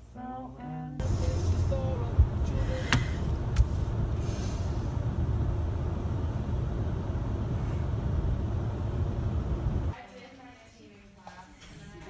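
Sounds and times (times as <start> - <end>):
car cabin low rumble: 1.0 - 9.9.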